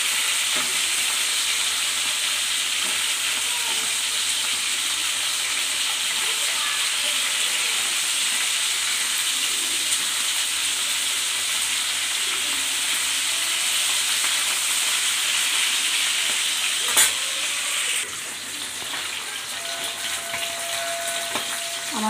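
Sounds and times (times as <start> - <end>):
fish sizzling in oil: 0.0 - 22.0.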